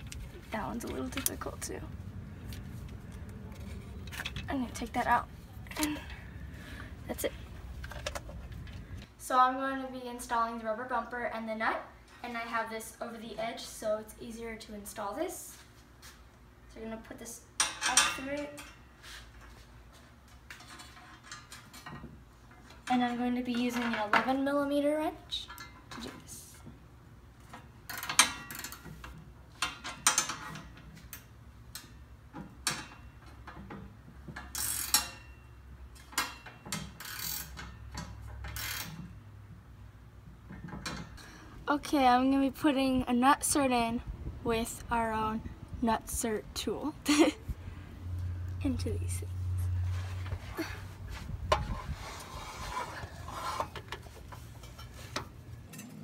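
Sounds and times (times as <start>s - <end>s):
short metal scrapes: 49.8s - 55.3s.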